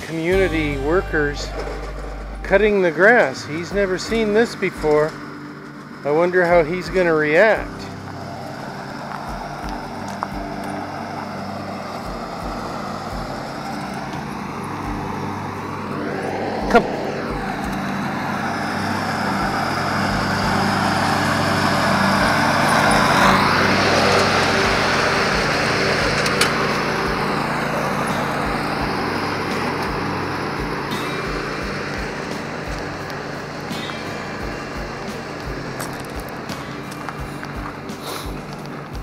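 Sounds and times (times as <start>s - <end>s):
riding lawn mower engine running: 0.0s - 39.0s.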